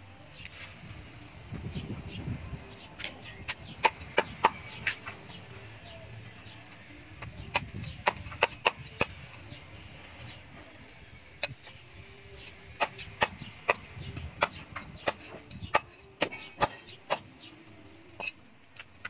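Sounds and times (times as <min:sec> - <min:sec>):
cleaver chopping on wooden block: 0:03.5 - 0:05.0, 0:07.2 - 0:09.2, 0:12.8 - 0:17.3.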